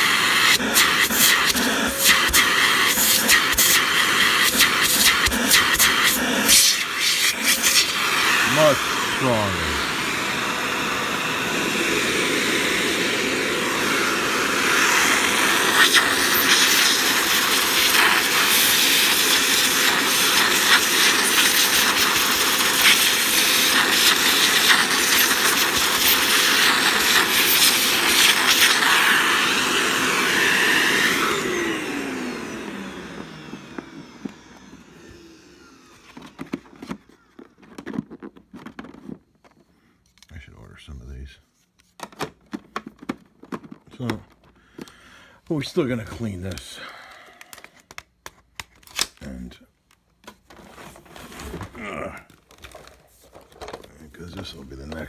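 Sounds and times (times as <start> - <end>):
vacuum cleaner running: 0.0 - 39.1.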